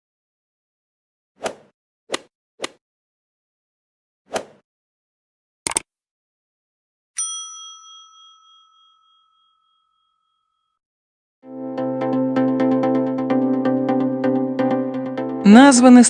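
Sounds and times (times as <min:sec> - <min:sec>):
short swish: 0:04.3 - 0:04.6
bright bell ding: 0:07.2 - 0:10.2
electronic music: 0:11.5 - 0:16.0.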